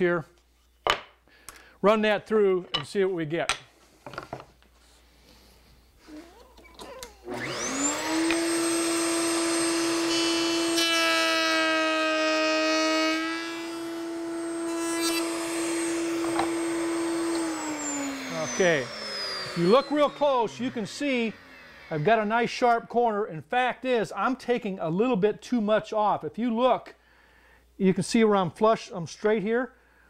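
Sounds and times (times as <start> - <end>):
router whining: 6.1 - 22.3
router bit cutting wood: 7.0 - 22.8.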